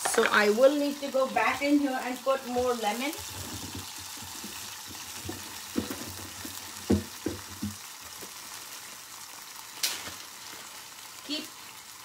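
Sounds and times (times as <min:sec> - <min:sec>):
seeds sizzling in a saucepan: 0:00.0 - 0:12.0
soft knocks: 0:06.8 - 0:07.8.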